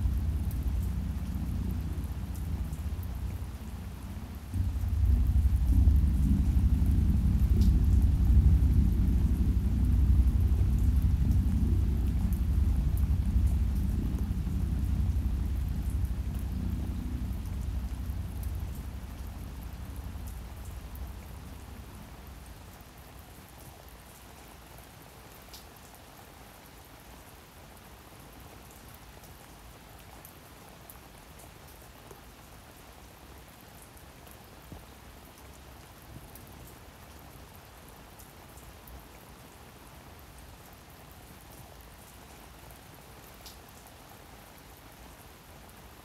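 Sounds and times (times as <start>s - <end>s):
low synth chord: 0.0s - 22.7s
steady rain falling: 0.0s - 46.0s.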